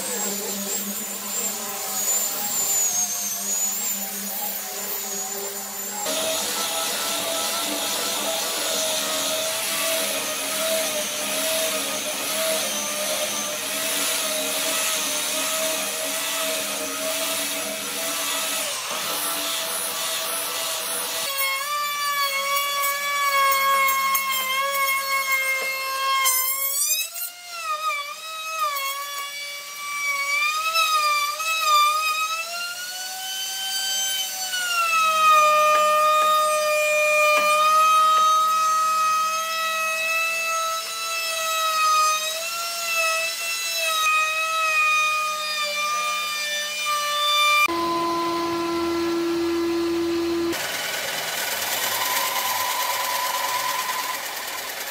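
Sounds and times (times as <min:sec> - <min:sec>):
router high whine: 0:00.0 - 0:21.0, 0:47.7 - 0:54.9
belt sander on wood: 0:00.0 - 0:25.8, 0:47.6 - 0:54.9.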